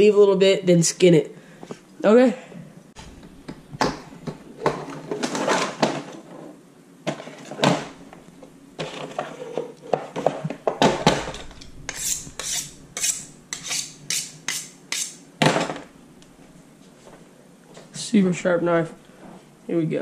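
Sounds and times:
knife scraping on sharpening steel: 11.9s - 15.2s.

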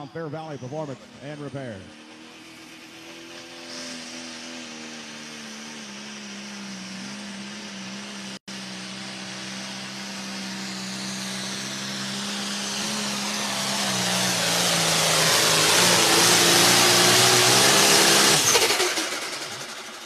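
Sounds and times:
tractor engine at full throttle: 0.0s - 20.0s.

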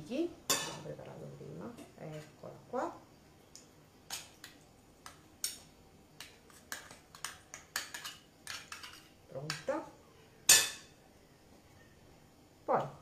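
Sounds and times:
utensils clicking on plate: 6.2s - 9.7s.

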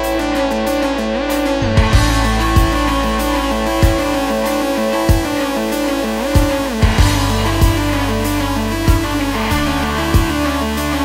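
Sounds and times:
electronic music: 0.0s - 11.0s
drum hit: 1.7s - 5.5s, 6.4s - 8.0s.

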